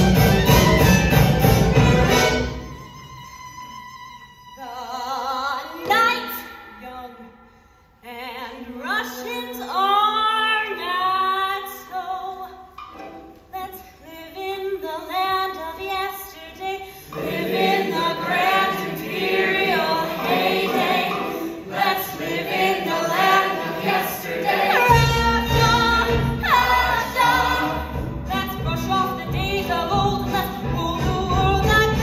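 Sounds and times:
chorus of voices singing: 17.0s - 31.1s.

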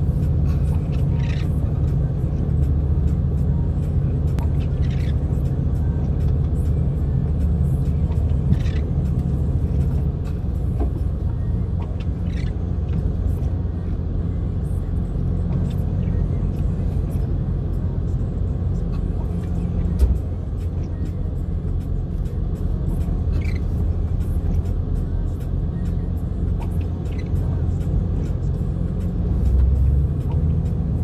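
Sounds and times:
vehicle engine and tyres rumbling: 0.0s - 31.0s.

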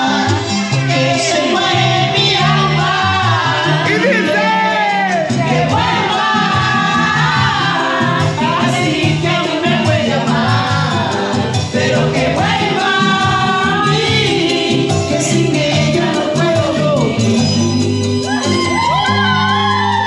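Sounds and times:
latin backing music: 0.0s - 20.0s
woman singing into microphone: 5.3s - 17.4s.

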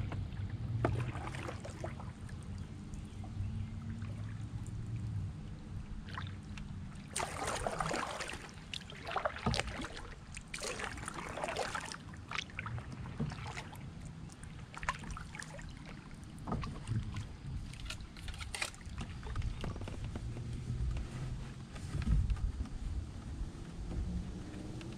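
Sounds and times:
low rumble: 0.0s - 7.1s
paddle splashing in water: 0.0s - 24.9s.

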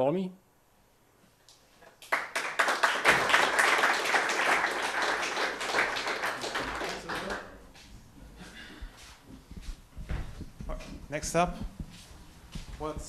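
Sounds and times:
audience applauding: 2.0s - 7.6s.

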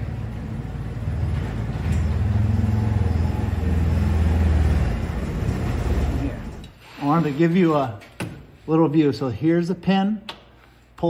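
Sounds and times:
utility vehicle engine running: 0.0s - 6.7s.

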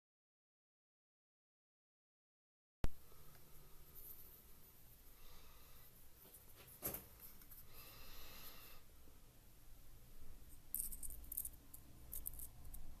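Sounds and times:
small metal parts clicking: 10.5s - 13.0s.

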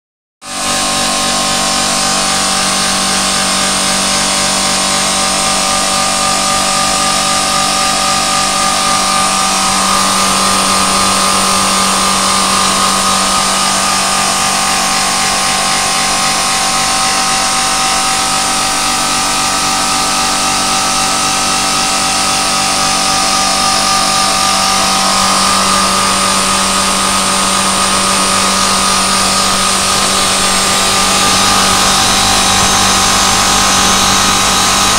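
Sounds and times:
pump machine whine: 0.4s - 34.9s
constant hum: 22.4s - 34.9s.

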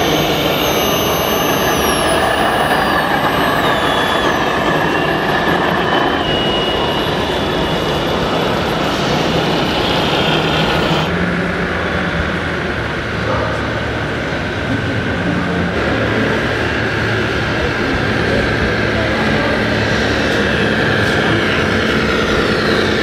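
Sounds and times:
electric hydraulic pump whine: 0.0s - 23.0s
loud rushing noise: 0.0s - 23.0s.

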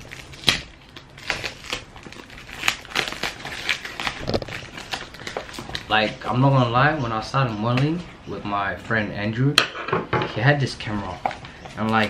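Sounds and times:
tape and paper ripping: 0.0s - 6.1s.

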